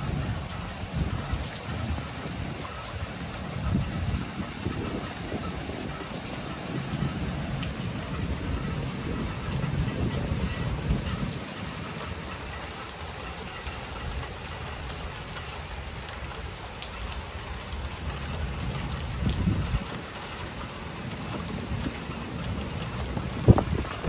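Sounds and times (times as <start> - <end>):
low thunder rumbles: 0.0 - 12.7, 17.6 - 24.0
rain pouring: 0.0 - 24.0.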